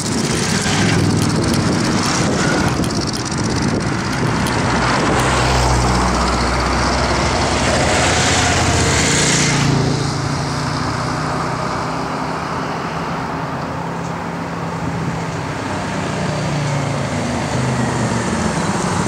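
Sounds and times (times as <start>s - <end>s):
motorcycle engines droning: 0.0s - 19.0s.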